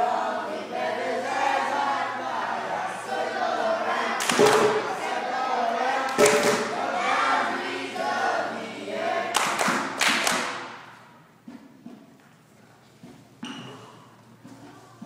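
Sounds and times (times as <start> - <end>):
young voices singing together: 0.0 - 11.4
sharp hand claps: 4.2 - 4.9, 6.1 - 6.8, 9.3 - 10.9.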